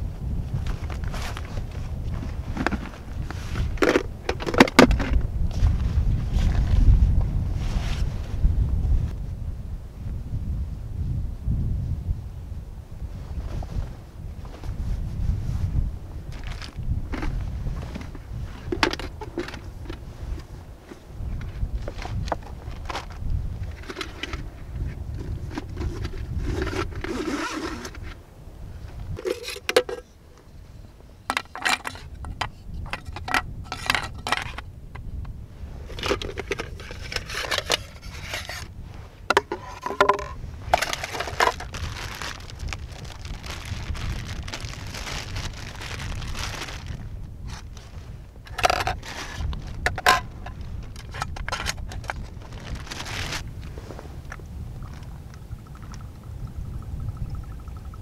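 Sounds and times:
low wind rumble on microphone: 0:00.0 - 0:58.0
handling noise: 0:00.6 - 0:06.8, 0:16.3 - 0:28.2, 0:29.1 - 0:30.2, 0:31.3 - 0:55.9
metal parts clinking and scraping: 0:29.2 - 0:30.0, 0:31.3 - 0:34.6, 0:35.9 - 0:38.7, 0:39.3 - 0:42.4, 0:48.5 - 0:50.2.

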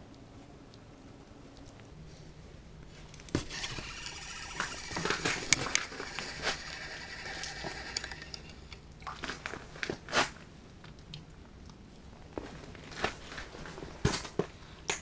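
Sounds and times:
fishing reel whirring and clicking: 0:03.4 - 0:08.9.

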